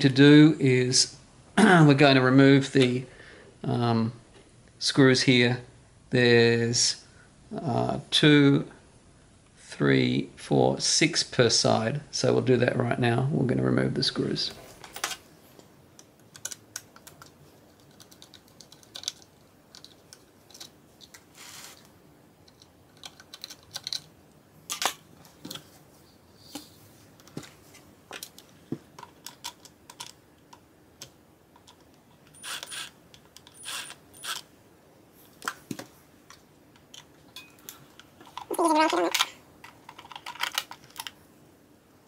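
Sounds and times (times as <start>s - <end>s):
short scrapes: 21.4s - 21.8s
screwdriver clicking on screws: 32.3s - 34.5s.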